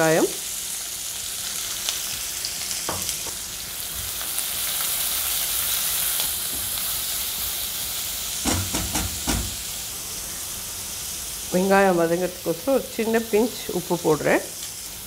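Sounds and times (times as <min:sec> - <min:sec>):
onions sizzling in hot oil: 0:00.0 - 0:15.0
spatula knocking against pan: 0:08.4 - 0:09.6.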